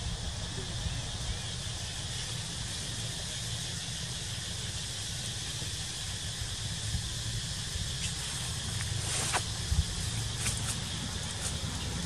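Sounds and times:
high hiss: 0.0 - 12.0.

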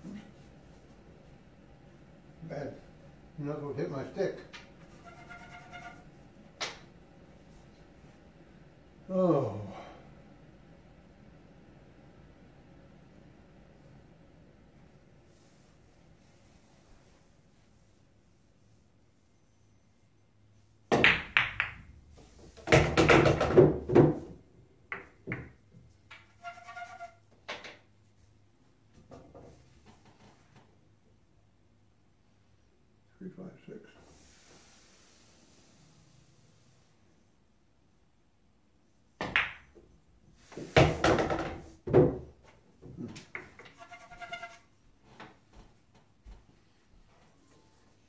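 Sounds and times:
pool balls clacking and rolling: 3.9 - 7.0, 20.9 - 27.9, 39.2 - 44.6.

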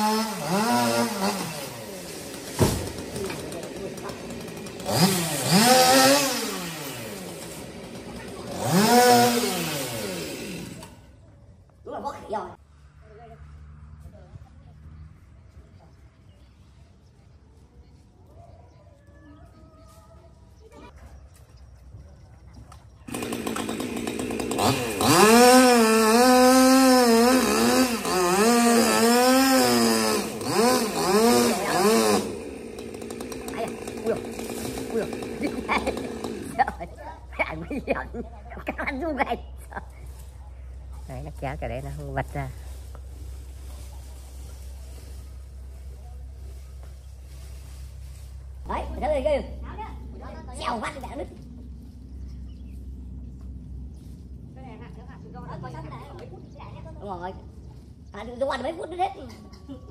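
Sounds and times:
chainsaw revving: 0.0 - 11.1, 23.1 - 39.2.

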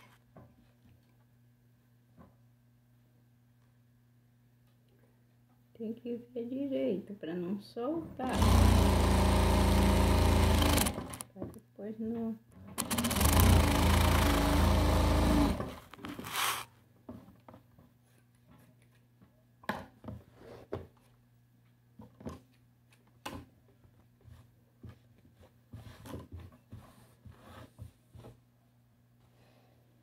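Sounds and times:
sewing machine stitching: 8.2 - 11.2, 12.8 - 16.7.

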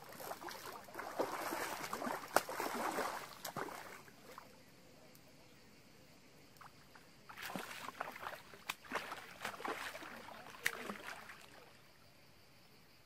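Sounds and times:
fish thrashing and splashing: 0.0 - 4.0, 7.4 - 11.6.

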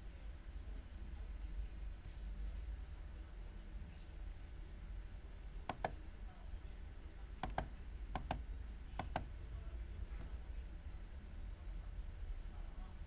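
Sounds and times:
low steady hum: 0.0 - 13.0
computer mouse button clicking: 5.7 - 6.0, 7.4 - 8.4, 9.0 - 9.3.

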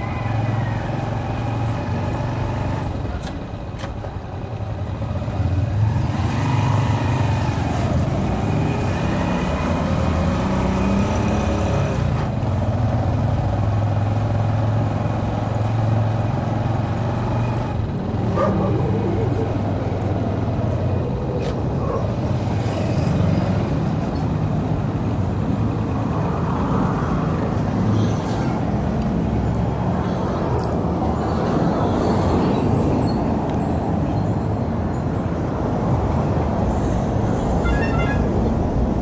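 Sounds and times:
road traffic: 0.0 - 39.0
vehicle horn beeps: 37.6 - 38.4.

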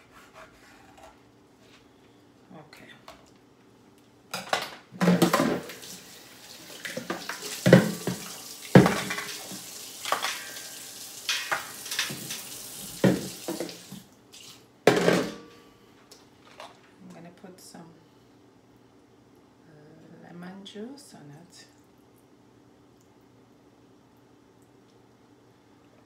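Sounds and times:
utensils clattering against sink: 4.4 - 5.9, 6.7 - 14.0
kitchen tap running into sink: 5.0 - 14.6.

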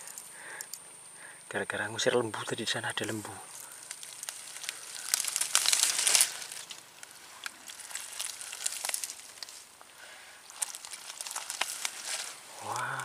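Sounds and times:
dry leaves crackling in hands: 3.0 - 13.0.

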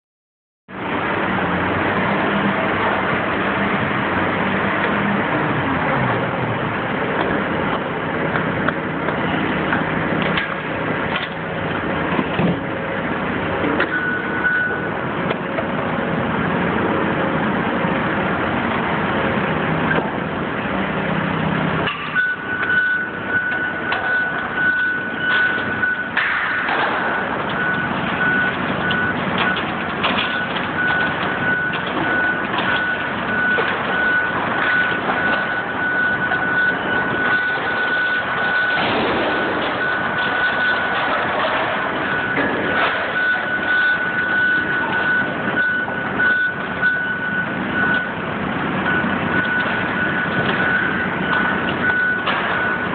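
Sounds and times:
excavator diesel engines: 0.7 - 52.9
machine warning beeps: 13.7 - 15.2, 21.9 - 52.9
sheet metal and debris crashing: 37.2 - 44.2.

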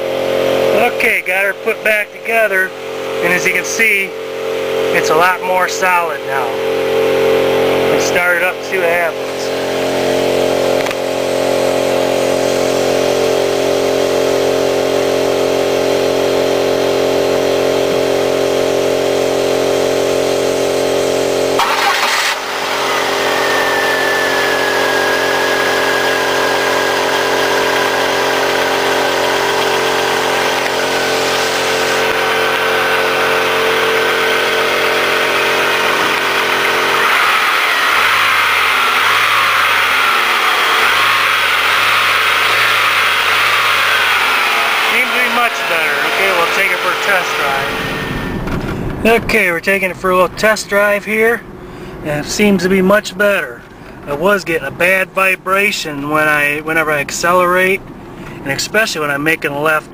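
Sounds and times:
car engine idling: 0.0 - 58.5
faint high whine falling in pitch: 9.0 - 49.5.

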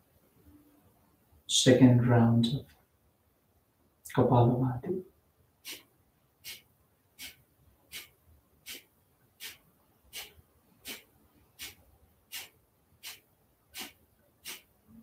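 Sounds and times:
forceful nasal exhalations: 5.6 - 6.6, 7.2 - 14.7.

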